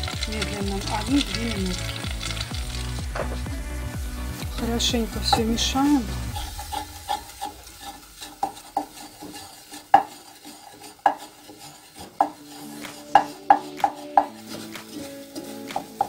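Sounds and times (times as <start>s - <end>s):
wooden spatula scraping a saucepan: 0.0s - 16.0s
spatula knocking against pan: 8.4s - 10.2s, 11.0s - 11.3s, 12.0s - 14.9s.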